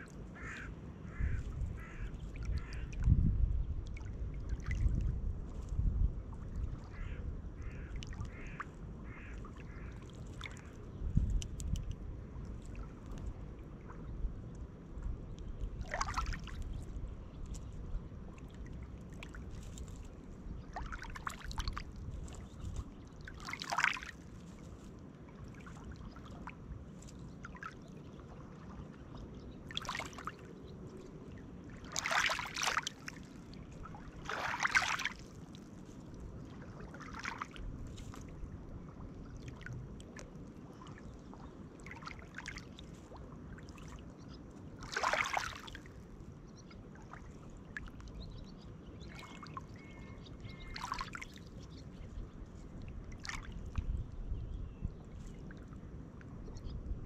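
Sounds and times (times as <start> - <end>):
low wash of water: 0.0 - 57.0
waves lapping on pebbles: 15.7 - 16.8, 17.4 - 46.2, 50.5 - 52.0.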